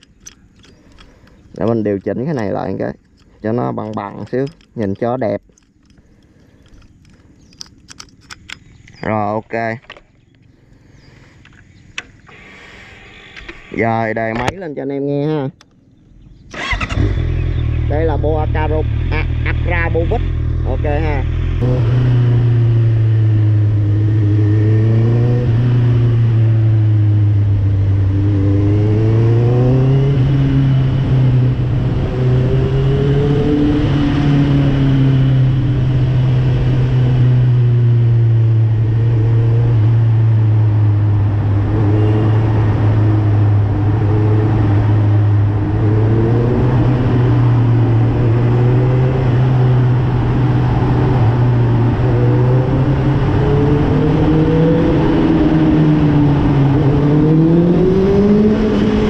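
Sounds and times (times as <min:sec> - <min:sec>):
motorcycle engine revving: 0:15.6 - 0:59.0.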